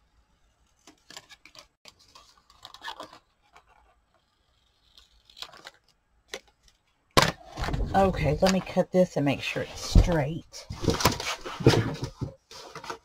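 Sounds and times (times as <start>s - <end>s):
paper rustling and crinkling: 0.6s - 6.9s, 9.8s - 13.0s.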